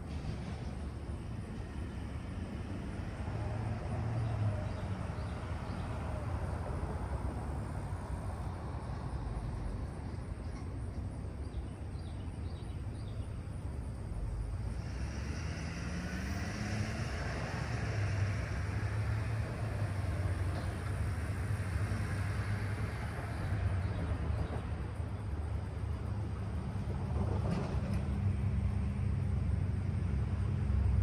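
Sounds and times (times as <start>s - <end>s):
diesel locomotive engine rumble: 0.0s - 31.0s.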